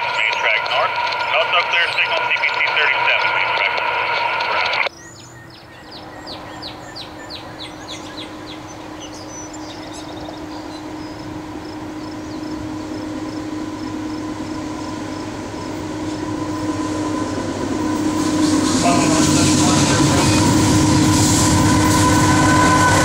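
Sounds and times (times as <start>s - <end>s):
diesel locomotive engine hum: 0.0s - 23.0s
bird chirping: 4.9s - 13.1s.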